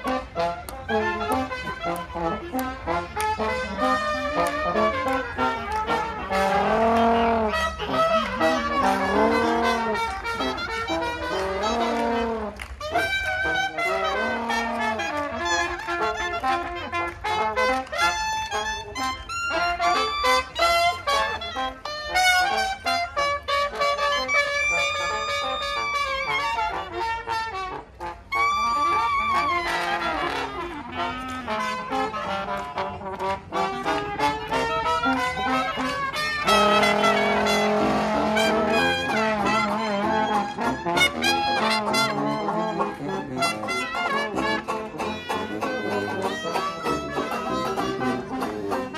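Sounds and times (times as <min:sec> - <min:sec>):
jazz band playing: 0:00.0 - 0:48.9
falling trombone slide: 0:33.2 - 0:45.8.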